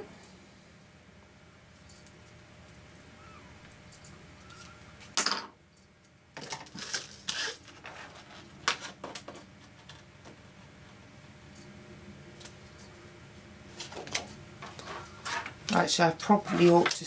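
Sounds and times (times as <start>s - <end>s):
plastic sheet crackling rustle: 6.4s - 9.8s.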